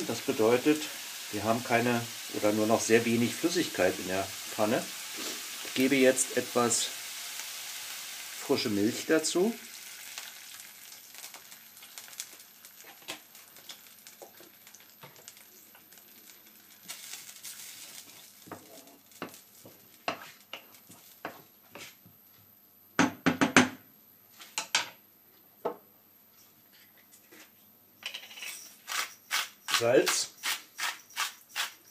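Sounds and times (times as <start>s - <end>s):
faint sizzle: 0.0s - 22.4s
milk poured into a hot pan: 0.1s - 21.2s
wooden spoon scraping a pan: 5.1s - 5.8s, 12.8s - 15.8s, 17.8s - 22.0s.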